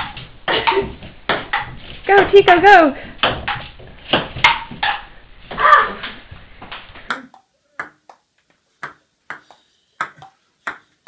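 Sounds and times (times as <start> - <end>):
room noise: 0.0 - 11.0
ping-pong ball bouncing: 7.1 - 8.2, 8.8 - 10.9.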